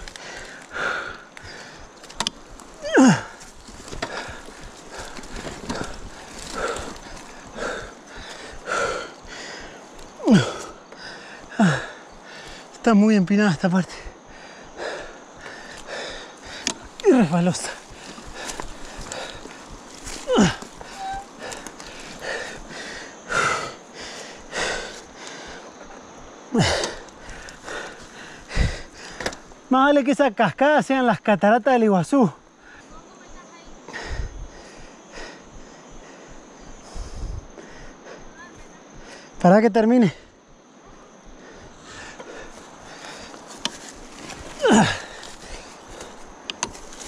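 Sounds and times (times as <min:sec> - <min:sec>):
person panting heavily: 0:00.0 - 0:02.0, 0:02.6 - 0:12.8, 0:13.9 - 0:25.8, 0:26.4 - 0:29.4, 0:33.8 - 0:39.4, 0:40.1 - 0:47.0
person breathing hard: 0:00.0 - 0:12.8, 0:13.9 - 0:29.6, 0:33.9 - 0:39.4, 0:40.1 - 0:47.0
person groaning with effort: 0:02.7 - 0:03.4, 0:10.2 - 0:10.8, 0:11.5 - 0:12.0, 0:17.0 - 0:17.8, 0:20.1 - 0:21.6, 0:26.5 - 0:27.0, 0:44.5 - 0:45.2
groan-like voiced breath: 0:20.2 - 0:23.8, 0:44.6 - 0:45.7.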